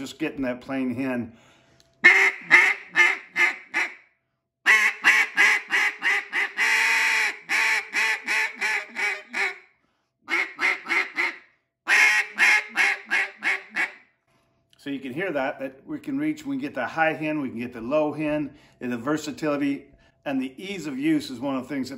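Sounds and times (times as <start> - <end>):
duck call quacks: 2.0 - 4.0, 4.7 - 9.6, 10.3 - 14.0.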